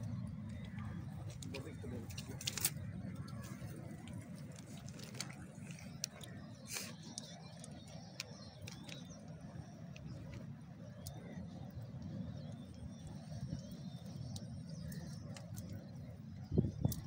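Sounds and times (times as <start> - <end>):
low outdoor rumble: 0.0 - 17.0
clicks and rustles of wet net: 0.5 - 10.5.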